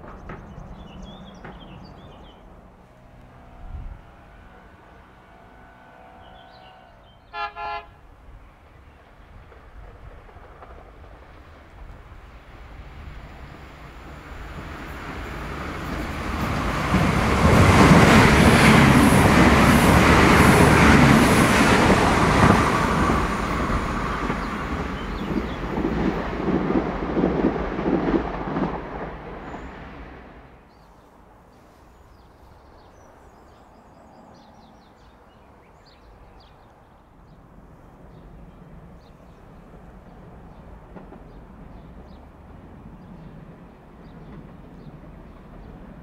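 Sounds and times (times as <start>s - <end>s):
train engine and wheels passing: 0.0s - 46.0s
train horn toots: 2.7s - 8.2s.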